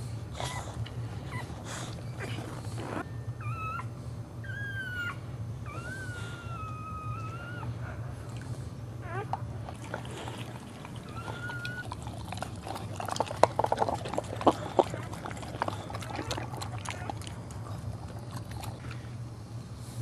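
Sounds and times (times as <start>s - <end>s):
steady low hum: 0.0s - 20.0s
dog licking with wet slurping: 9.6s - 19.2s.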